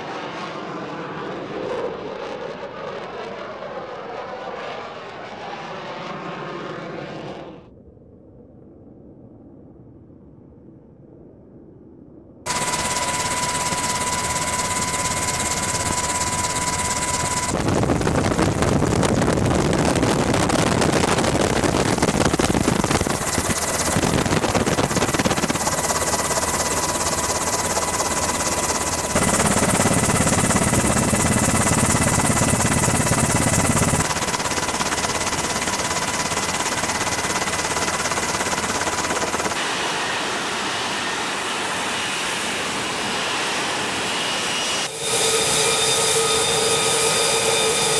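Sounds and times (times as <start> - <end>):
jet and helicopter engines: 0.0 - 10.6, 12.5 - 47.9
high engine whine: 12.5 - 47.9.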